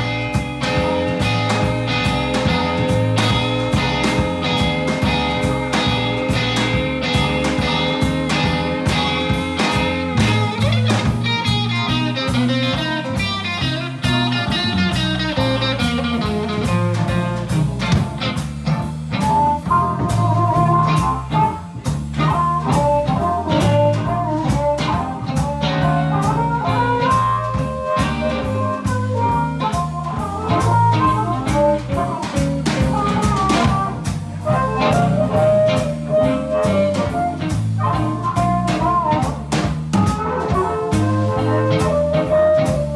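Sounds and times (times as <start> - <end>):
blues band playing live: 0.0 - 42.9
drum kit steady beat: 0.0 - 42.9
electric bass: 0.0 - 42.9
electric guitars: 0.0 - 42.9.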